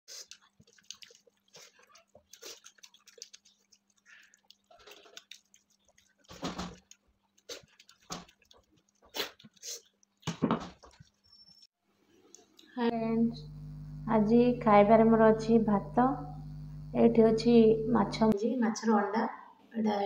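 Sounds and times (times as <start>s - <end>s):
fingers squishing food: 0.1s - 11.4s
faint steady hum: 12.0s - 18.4s.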